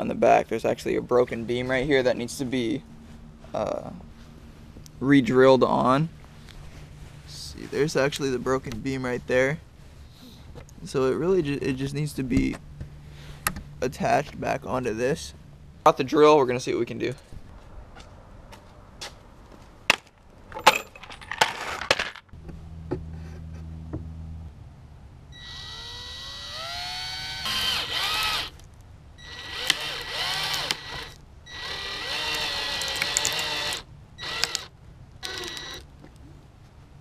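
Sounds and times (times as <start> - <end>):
cordless drill driving into wood: 25.4 - 28.6, 29.2 - 35.9.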